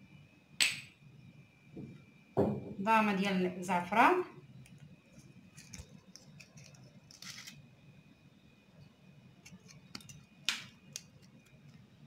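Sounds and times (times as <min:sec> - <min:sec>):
spices clicking and rustling: 0:04.6 - 0:07.7, 0:09.4 - 0:11.9.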